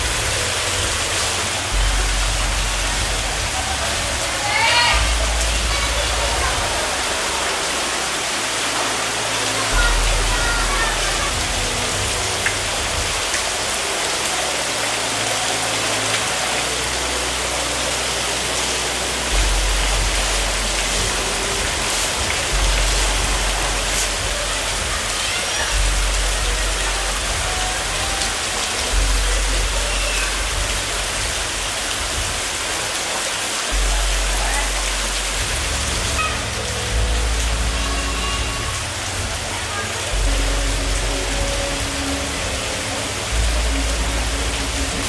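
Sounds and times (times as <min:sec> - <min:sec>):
deep bass music: 0:00.0 - 0:45.0
steady rain: 0:00.0 - 0:45.0.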